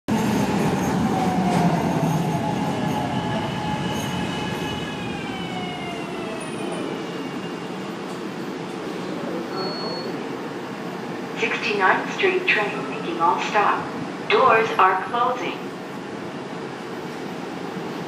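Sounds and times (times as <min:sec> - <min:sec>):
train wheels rumbling on rails: 0:00.1 - 0:09.2
brief high tone: 0:09.5 - 0:10.2.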